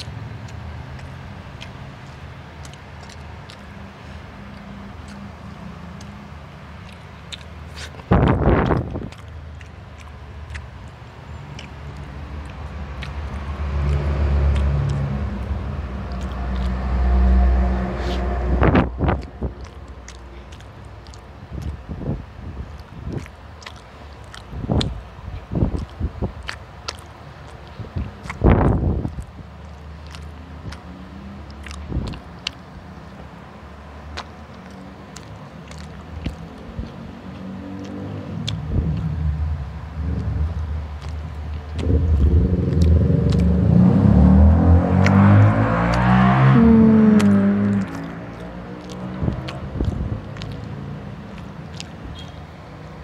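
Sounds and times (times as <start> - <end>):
person chewing food: 0.0 - 53.0
vehicle engine hum: 0.0 - 53.0
wet mouth clicks and lip smacks: 0.0 - 53.0
low steady hum: 38.2 - 52.2.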